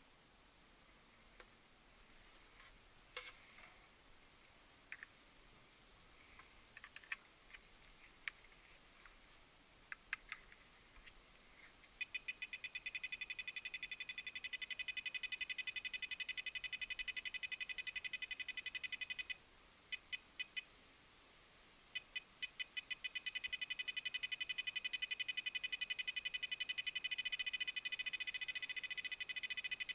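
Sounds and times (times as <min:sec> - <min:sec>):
satellite finder beeping: 0:12.0 - 0:20.6, 0:22.0 - 0:29.9.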